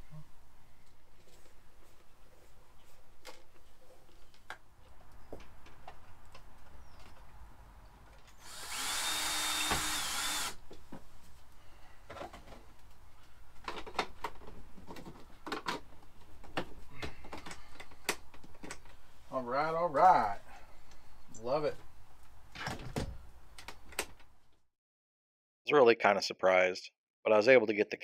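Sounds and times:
cordless drill motor running: 0:08.4 - 0:10.6.

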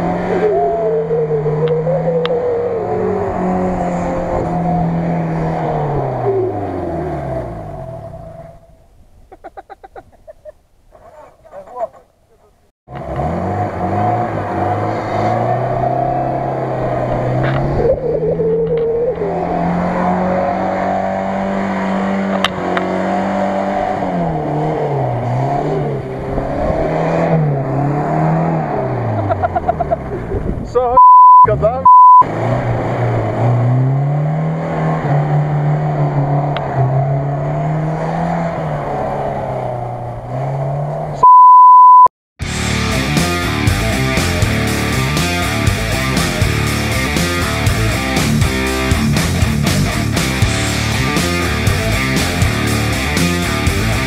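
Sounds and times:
engine revving hard: 0:12.9 - 0:18.0, 0:19.1 - 0:29.2, 0:31.5 - 0:41.2.

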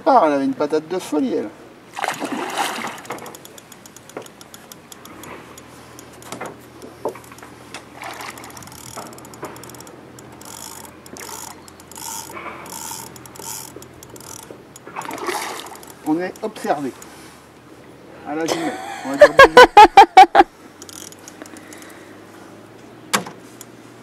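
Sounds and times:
fishing reel clicking: 0:02.8 - 0:17.1, 0:20.8 - 0:22.0.

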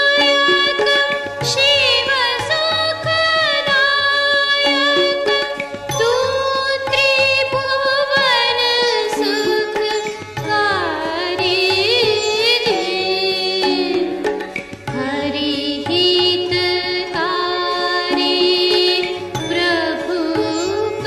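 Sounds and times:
indian classical style music: 0:00.0 - 0:21.0.

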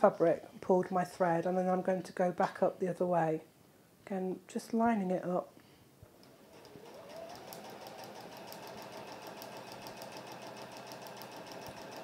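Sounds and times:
sewing machine motor whine: 0:06.3 - 0:12.0.

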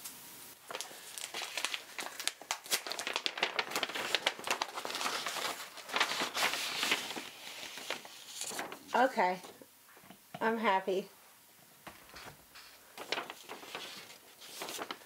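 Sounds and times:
paper crinkling: 0:00.6 - 0:09.5, 0:11.9 - 0:15.0.

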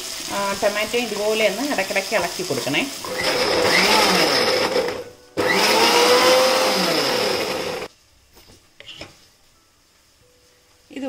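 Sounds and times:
mixer grinder running: 0:03.0 - 0:07.9.

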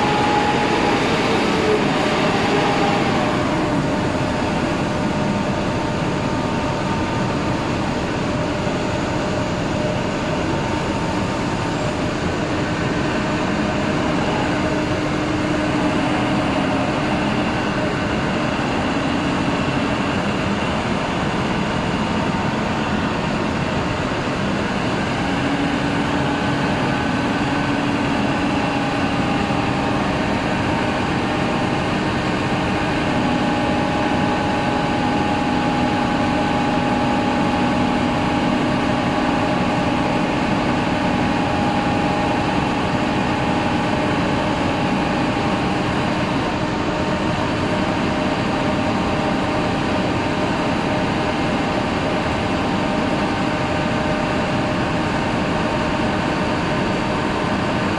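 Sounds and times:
forklift engine and hydraulics: 0:00.0 - 0:57.9.

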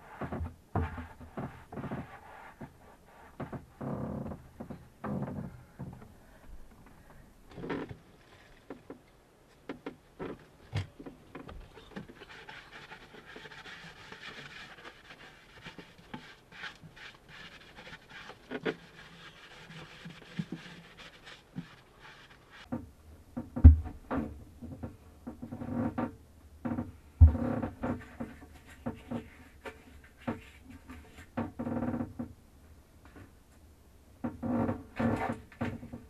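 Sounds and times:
sponge scrubbing fibreglass: 0:11.8 - 0:22.7.

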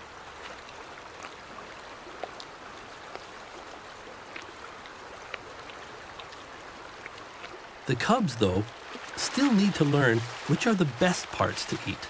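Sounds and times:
creek water over rocks: 0:00.0 - 0:12.0
small clicks and ticks: 0:04.3 - 0:07.6.

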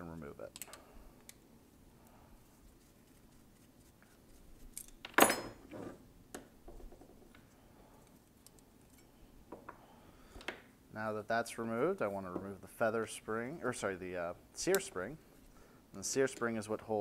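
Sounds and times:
metal tools clinking on wood: 0:04.8 - 0:05.8.

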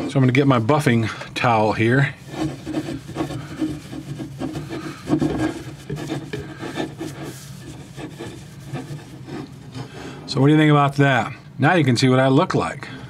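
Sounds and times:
towel rubbing on chrome rim: 0:00.0 - 0:10.0.

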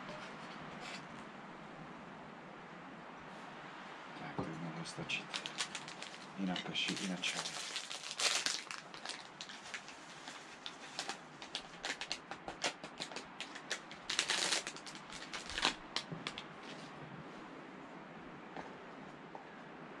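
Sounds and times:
food packet crinkling: 0:05.2 - 0:16.4.

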